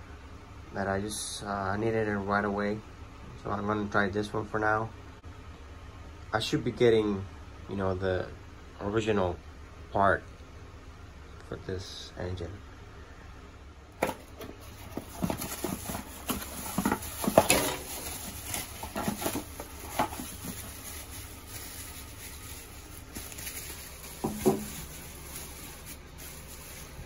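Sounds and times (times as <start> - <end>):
bubble wrap crinkling: 14.0 - 27.0.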